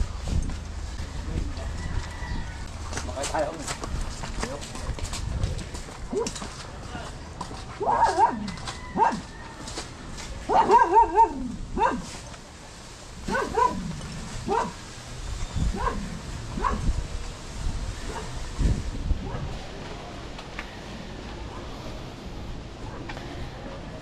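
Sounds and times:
dog barking: 0:07.9 - 0:08.4, 0:09.0 - 0:09.3, 0:10.5 - 0:12.1, 0:13.3 - 0:13.8, 0:14.5 - 0:14.8, 0:15.7 - 0:16.9, 0:18.1 - 0:18.4, 0:19.2 - 0:19.5.

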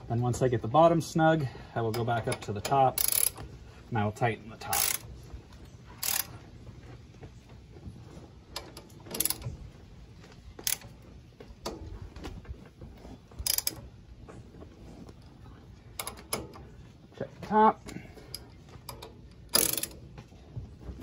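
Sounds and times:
wrench metallic clicks: 0:01.9 - 0:03.4, 0:04.7 - 0:05.0, 0:06.0 - 0:06.3, 0:08.6 - 0:09.5, 0:10.6 - 0:10.9, 0:13.4 - 0:13.8, 0:16.0 - 0:16.6, 0:18.3 - 0:20.0.

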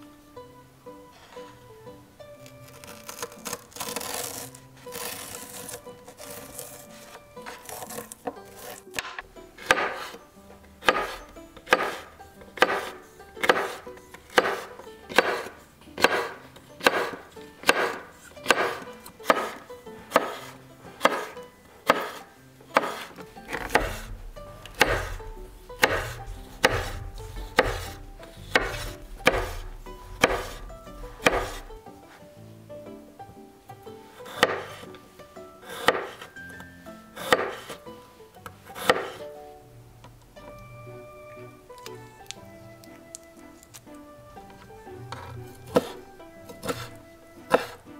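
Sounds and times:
soft background music: 0:00.0 - 0:47.9
knife slicing on cutting board: 0:02.7 - 0:10.2, 0:10.8 - 0:22.2, 0:22.8 - 0:31.8, 0:34.2 - 0:34.9, 0:35.6 - 0:36.4, 0:37.2 - 0:37.8, 0:38.6 - 0:39.2, 0:45.1 - 0:47.9.

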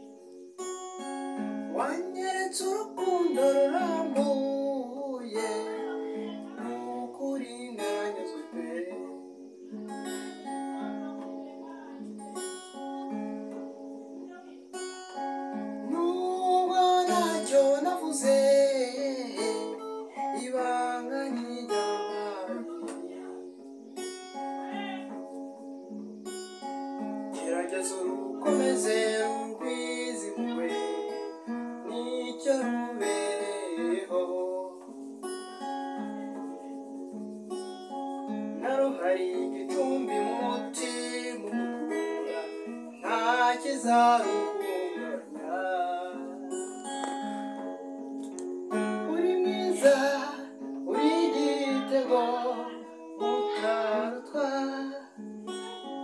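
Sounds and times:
strummed acoustic guitar: 0:00.0 - 0:56.0
man singing: 0:01.7 - 0:09.4, 0:15.9 - 0:23.2, 0:27.3 - 0:35.0, 0:38.6 - 0:46.6, 0:48.7 - 0:55.8.

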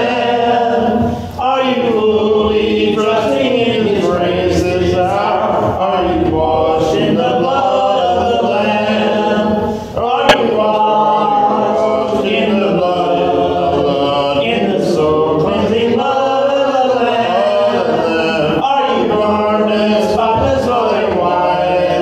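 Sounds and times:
man singing a hymn: 0:10.0 - 0:22.0
sharp click: 0:10.3 - 0:10.6.

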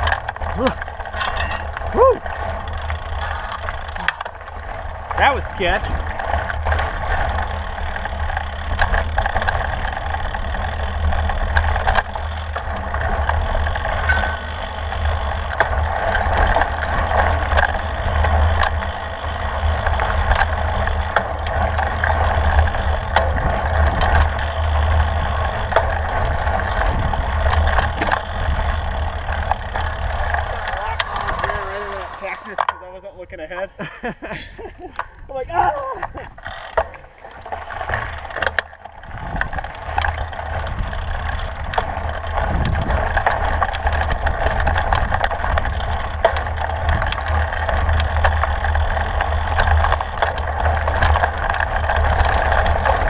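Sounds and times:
steady low rumble: 0:00.0 - 0:35.6
bike rattles and clicks: 0:00.0 - 0:53.0.

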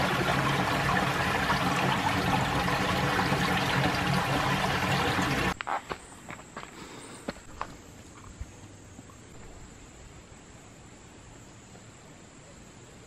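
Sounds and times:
water rushing and splashing: 0:00.0 - 0:05.6.

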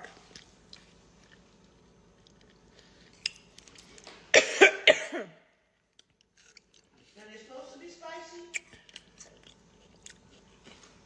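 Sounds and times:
person coughing: 0:04.3 - 0:05.4.

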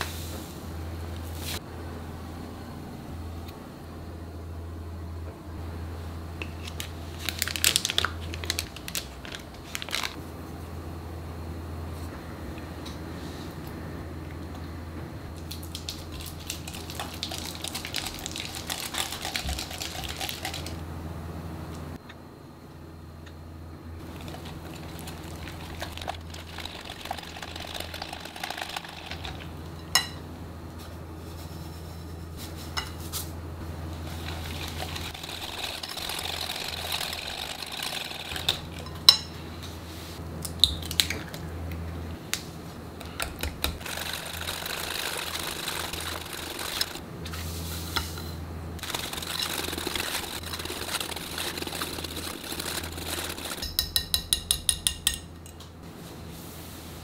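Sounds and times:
steady low hum: 0:00.0 - 0:57.0
whisk scraping and stirring batter: 0:16.1 - 0:20.7, 0:24.0 - 0:29.5, 0:34.0 - 0:38.6, 0:43.7 - 0:47.0, 0:48.8 - 0:54.0.

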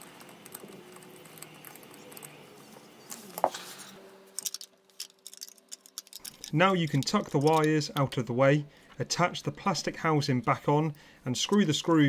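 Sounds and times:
fingers rustling wires: 0:04.3 - 0:08.1.

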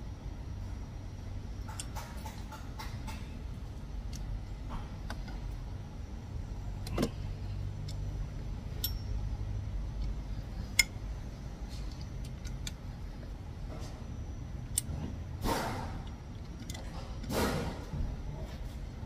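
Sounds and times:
steady low hum: 0:00.0 - 0:19.0
metal wrench clicks: 0:08.8 - 0:09.1.

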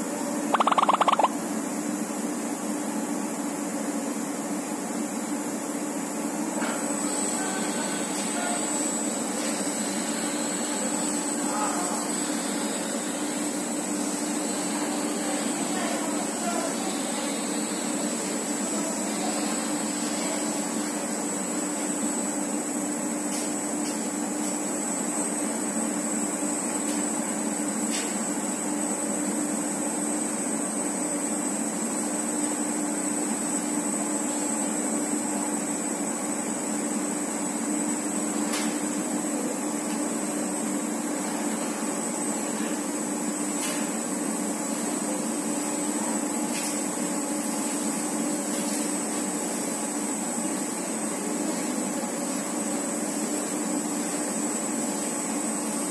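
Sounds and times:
machinery hum: 0:00.0 - 0:01.9.

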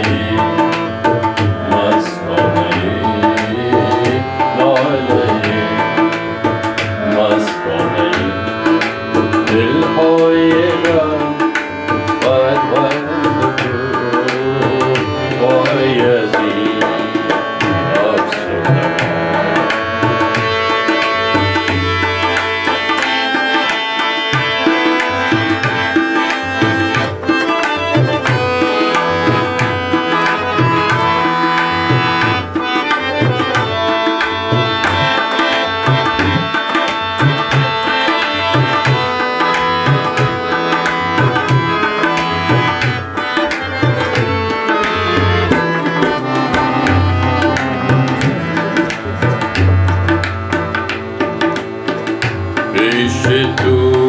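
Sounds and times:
harmonium melody: 0:00.0 - 0:54.0
tabla rhythm: 0:00.0 - 0:54.0.

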